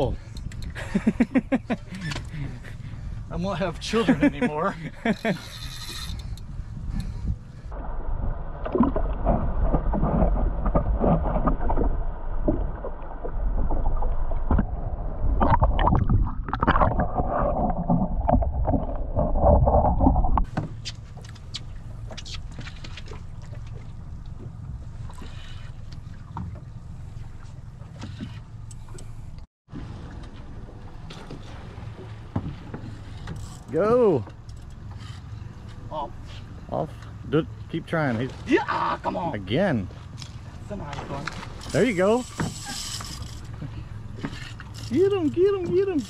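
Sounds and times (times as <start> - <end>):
clicks aboard boat: 0.0 - 0.8, 1.7 - 2.4, 20.4 - 37.2, 39.9 - 46.0
wind and water noise: 0.0 - 46.0
underwater rushing and bubbling: 6.2 - 33.2.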